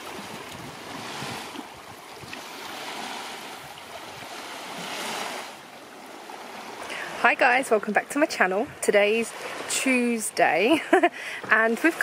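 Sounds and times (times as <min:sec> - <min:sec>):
light wind on microphone: 0:00.0 - 0:07.2
small waves on rocky shore: 0:00.0 - 0:12.0.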